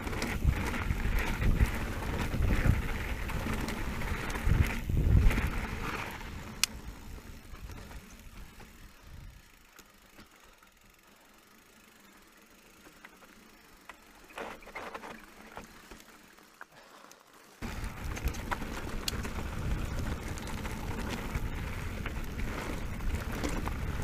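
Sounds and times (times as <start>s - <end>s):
bike rattling: 0.0s - 24.0s
bike tyres on gravel: 0.0s - 24.0s.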